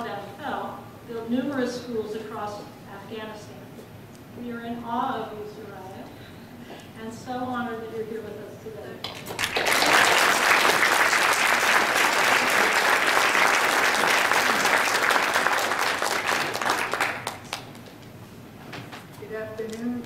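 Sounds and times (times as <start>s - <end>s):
audience applauding: 9.1s - 17.9s.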